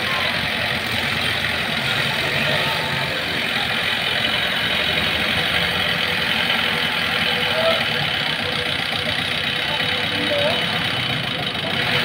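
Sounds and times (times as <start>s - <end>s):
tractor engine running: 0.0s - 12.0s.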